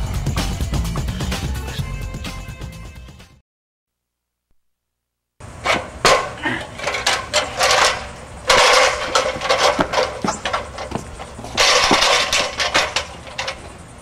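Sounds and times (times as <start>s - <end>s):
ladder rungs knocking: 5.6s - 14.0s
metal ladder rattling: 5.6s - 14.0s.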